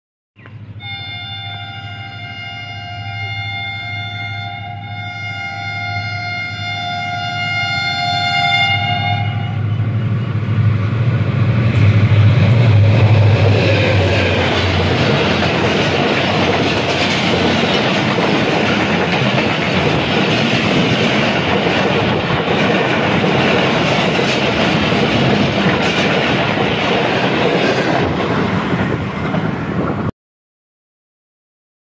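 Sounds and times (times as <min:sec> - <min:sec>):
train rumbling past: 0:00.4 - 0:30.1
diesel locomotive horn blast: 0:00.8 - 0:10.3.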